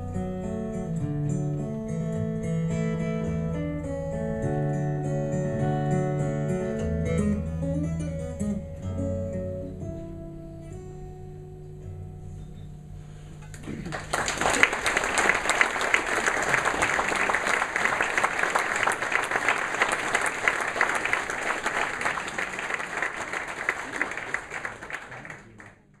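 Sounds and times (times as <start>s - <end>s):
audience applauding: 13.6s - 26.0s.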